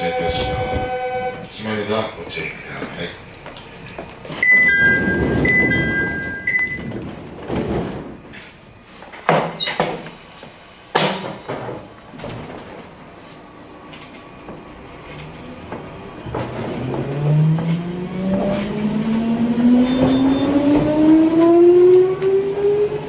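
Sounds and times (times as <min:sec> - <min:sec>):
two-tone door chime: 0:00.0 - 0:01.4, 0:04.4 - 0:07.0
doors shutting with heavy thuds: 0:00.0 - 0:01.5, 0:04.0 - 0:13.0, 0:19.7 - 0:21.9
sliding doors rushing: 0:00.0 - 0:01.5, 0:03.7 - 0:13.2, 0:13.8 - 0:23.0.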